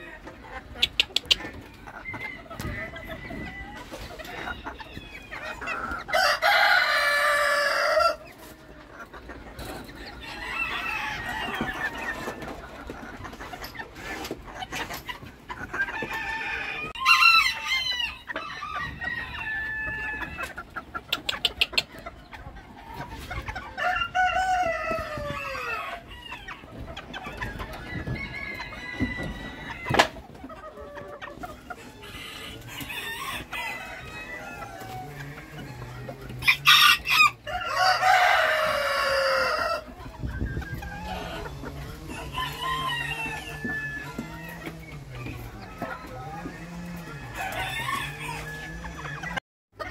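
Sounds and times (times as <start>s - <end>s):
chickens clucking: 0.0s - 49.9s
roosters crowing: 1.8s - 8.7s, 9.6s - 12.7s, 15.6s - 20.7s, 23.3s - 49.9s.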